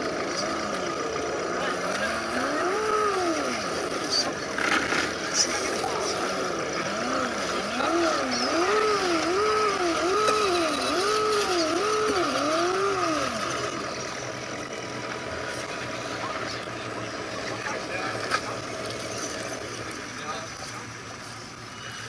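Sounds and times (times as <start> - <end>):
toy truck electric motor whining: 0.0 - 15.2.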